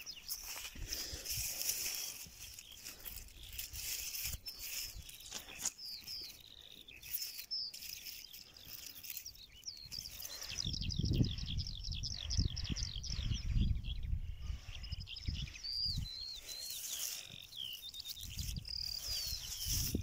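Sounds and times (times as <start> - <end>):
hand rustling through leaves: 0.0 - 10.6, 16.3 - 20.0
small birds chirping: 0.0 - 20.0.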